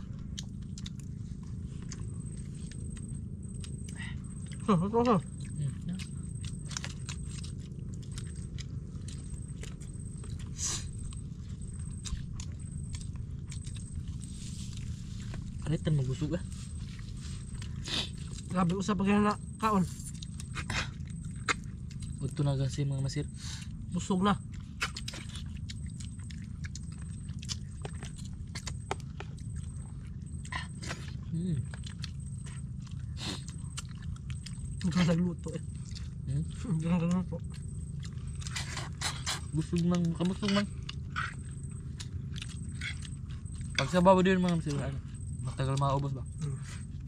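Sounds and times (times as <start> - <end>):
low rumble: 0.0 - 47.0
people chewing fish: 0.0 - 47.0.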